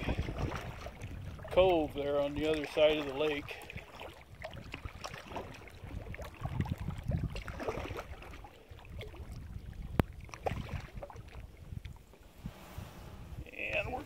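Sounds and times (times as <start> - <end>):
paddle splashes: 0.0 - 13.0
wind on microphone: 0.0 - 14.0
hull swishing through grass: 12.2 - 13.7.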